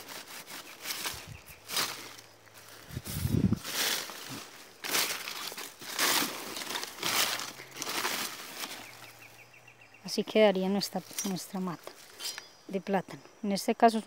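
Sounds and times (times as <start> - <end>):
dry leaves crackling and tearing: 0.0 - 9.4, 10.8 - 12.2.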